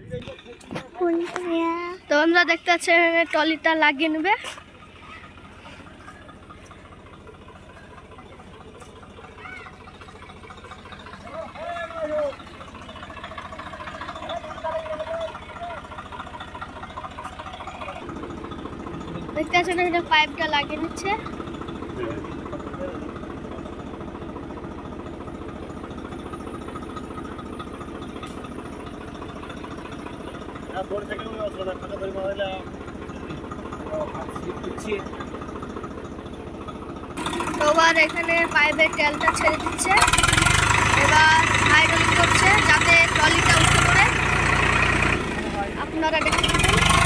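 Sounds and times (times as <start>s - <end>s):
tractor diesel engine idling: 0.0s - 47.0s.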